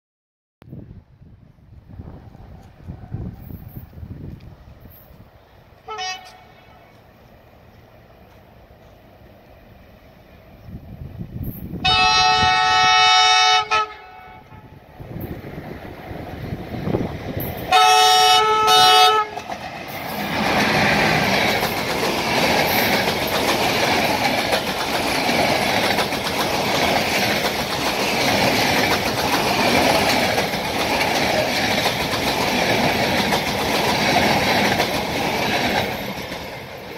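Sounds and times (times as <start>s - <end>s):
train wheels rumbling on rails: 0.7s - 36.9s
train horn blasts: 5.8s - 7.0s, 11.8s - 14.8s, 17.7s - 19.4s.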